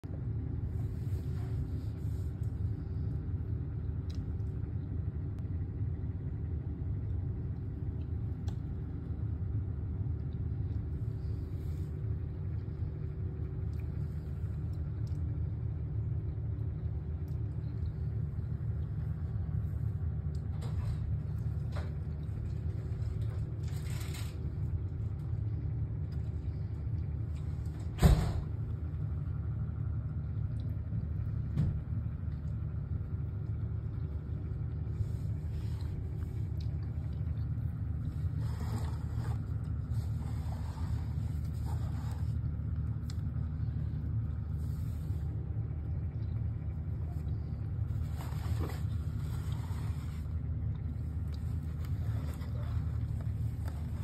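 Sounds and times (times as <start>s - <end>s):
electric motors humming: 32.1s - 54.0s.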